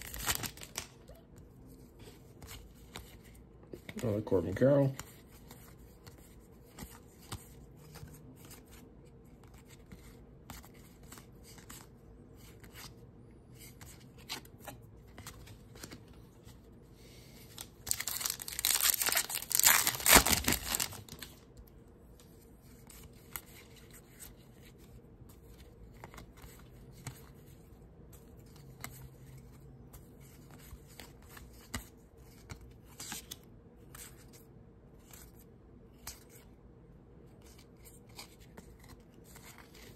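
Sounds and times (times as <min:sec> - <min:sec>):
wrapper crinkling tear: 0:00.0 - 0:01.0, 0:17.6 - 0:21.4.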